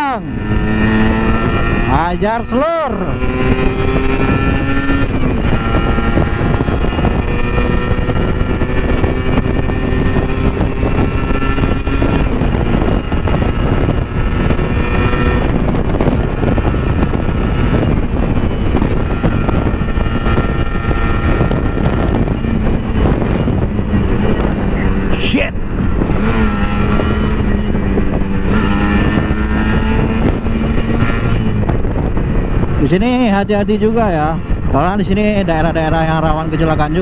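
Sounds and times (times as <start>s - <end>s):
motorcycle engine running: 0.0s - 37.0s
wind rushing on microphone: 0.0s - 37.0s.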